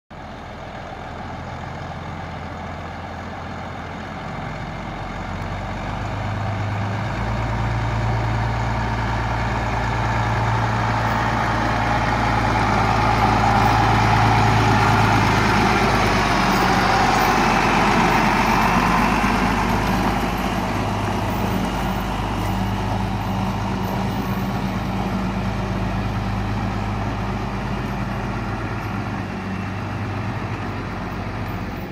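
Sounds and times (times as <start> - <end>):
truck engine driving past: 0.2 - 31.9
tyres on gravel: 9.6 - 31.8.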